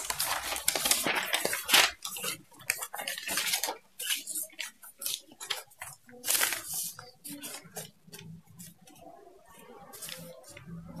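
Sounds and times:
paper sheets rustling: 0.0 - 11.0.

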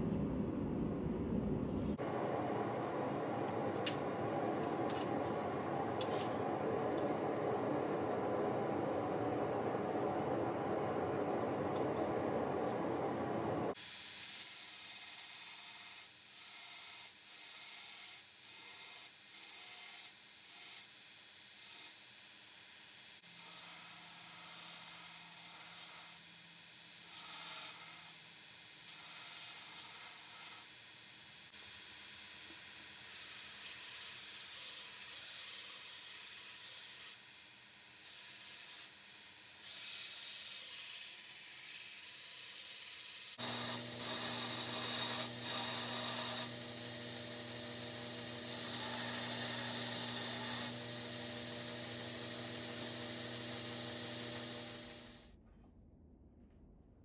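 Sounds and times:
belt grinder grinding steel: 43.4 - 55.1.

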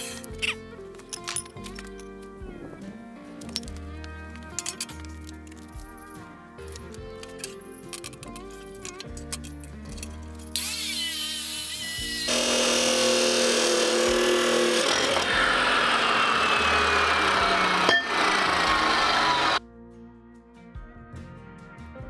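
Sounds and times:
background music: 0.0 - 22.0
chop saw grinding steel: 10.6 - 19.6.

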